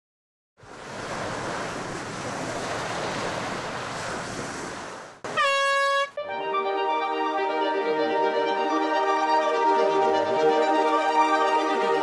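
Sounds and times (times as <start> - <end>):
ocean surf washing: 0.6 - 12.0
held musical tone: 5.4 - 12.0.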